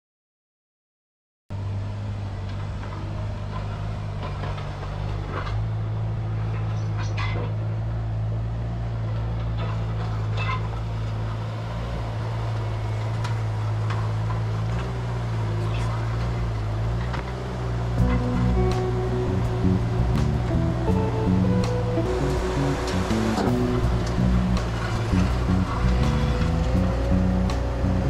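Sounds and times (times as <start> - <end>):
diesel engine idling: 18.0 - 28.0.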